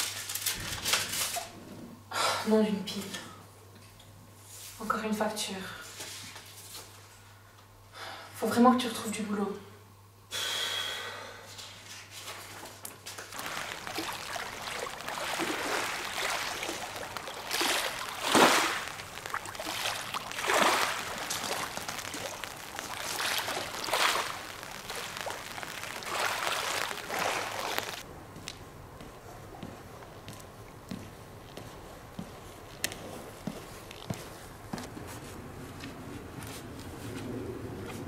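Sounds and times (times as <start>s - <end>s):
waves breaking on pebble shore: 13.2s - 28.0s.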